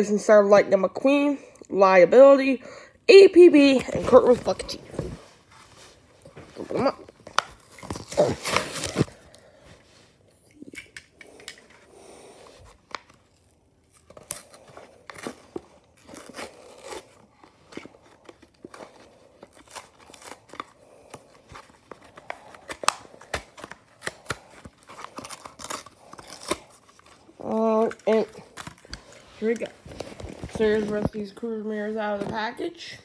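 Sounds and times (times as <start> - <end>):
cardboard tearing: 6.5 - 9.4, 12.6 - 31.2
plastic crinkling: 12.6 - 31.4.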